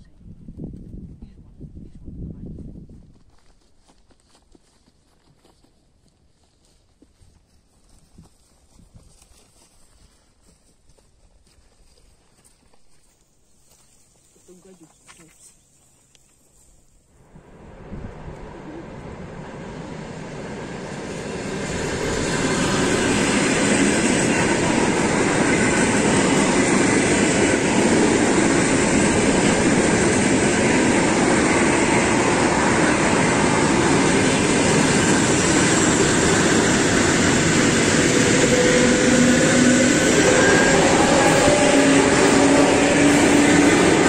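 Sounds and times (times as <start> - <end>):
train wheels on rails: 17.5 - 44.0.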